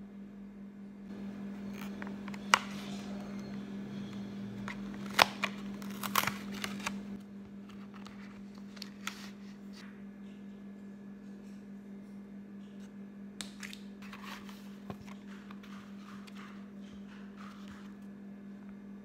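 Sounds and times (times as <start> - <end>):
steady low hum: 0.0 - 19.0
foil pouch rustling: 4.6 - 9.7
paperboard box tearing: 4.7 - 7.0.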